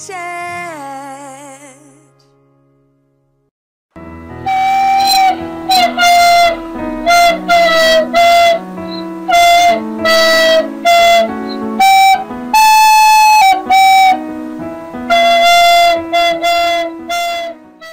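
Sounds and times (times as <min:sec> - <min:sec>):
instrumental background music: 0:04.0 - 0:17.9.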